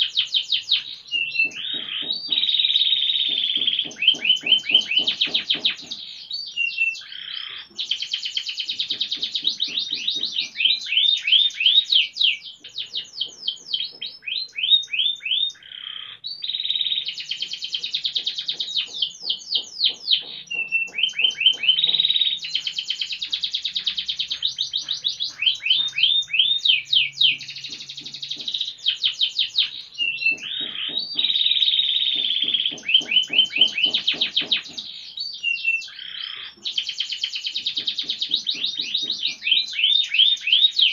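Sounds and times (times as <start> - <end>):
canary singing: 0.0 - 40.9.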